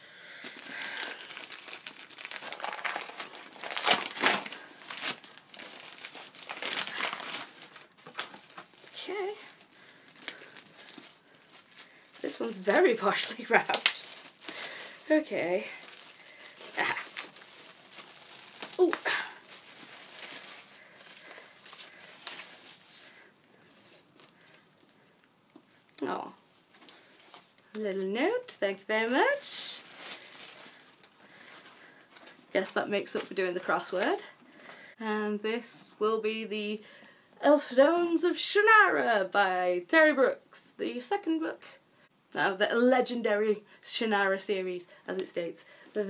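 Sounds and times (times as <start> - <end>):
newspaper crinkling and rustling: 0.4 - 25.8, 29.0 - 34.8.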